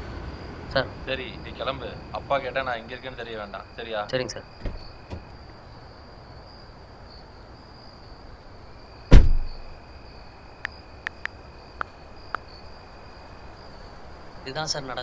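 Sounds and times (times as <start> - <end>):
crickets chirping: 0.0 - 15.0
car door shutting: 4.6 - 5.3, 9.1 - 9.6.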